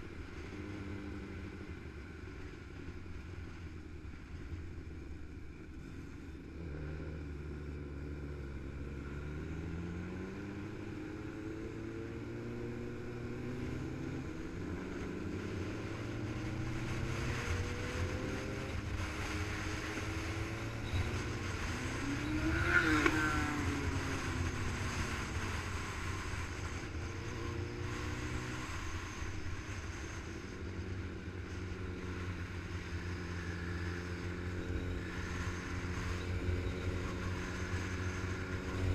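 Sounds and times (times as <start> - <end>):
motorcycle engine running: 0.0 - 38.9
vehicle passing by: 15.4 - 25.9.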